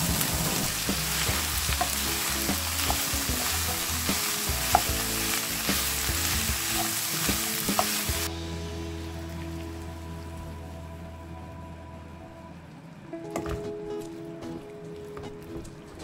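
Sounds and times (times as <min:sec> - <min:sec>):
vegetables sizzling in a pan: 0:00.0 - 0:10.0
spatula knocking and scraping pan: 0:01.2 - 0:08.2.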